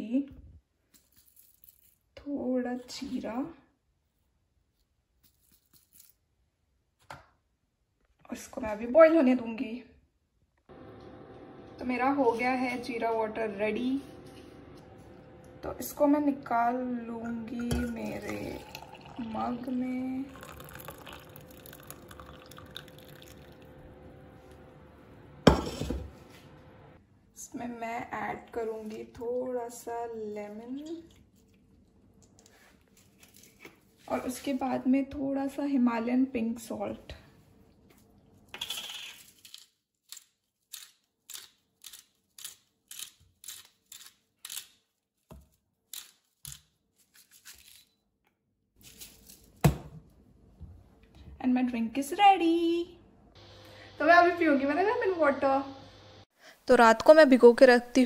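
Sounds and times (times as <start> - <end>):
faint steady hum: 10.7 - 29.3, 52.5 - 58.0
water trickling into mug: 17.3 - 24.2.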